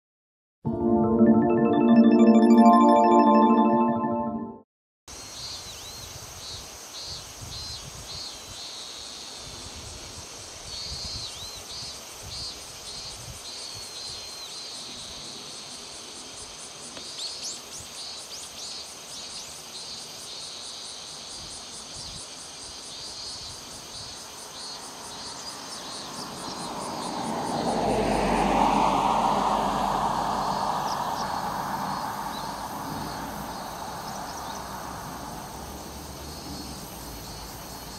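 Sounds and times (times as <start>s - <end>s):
insects chirping: 11.8s - 37.9s
vehicle passing: 26.0s - 37.3s.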